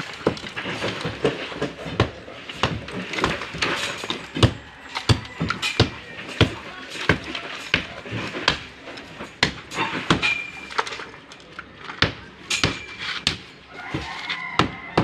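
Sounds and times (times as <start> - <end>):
hammer striking plastered wall: 0.1 - 8.7, 12.0 - 15.0.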